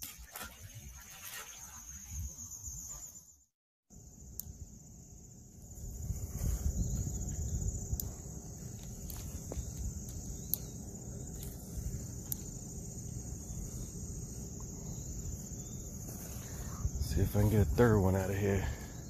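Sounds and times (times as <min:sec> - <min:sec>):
insects trilling: 0:00.2 - 0:19.0
sharp ticks: 0:04.3 - 0:04.6, 0:07.9 - 0:11.6, 0:12.2 - 0:12.6.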